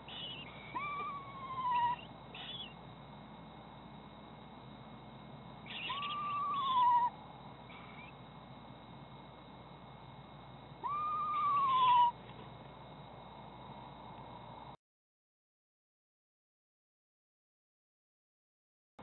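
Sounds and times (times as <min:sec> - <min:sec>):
owl whinny call: 0:00.0 - 0:02.8, 0:05.7 - 0:08.1, 0:10.8 - 0:12.2.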